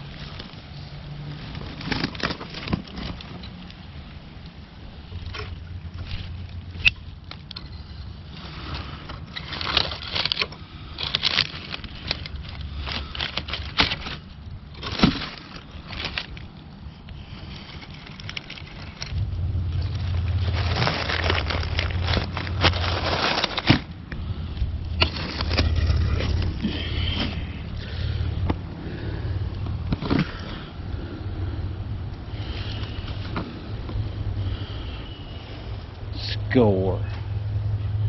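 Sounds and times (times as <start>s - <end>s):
dry leaves and twigs crackling: 0.0s - 38.0s
low rumble: 16.4s - 38.0s.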